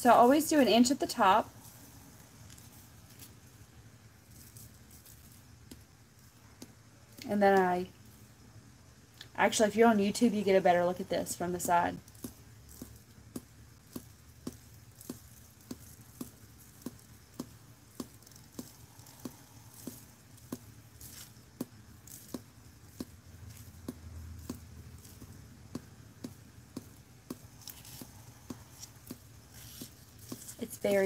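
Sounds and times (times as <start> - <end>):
jar shaking soft ticks: 11.6 - 31.0.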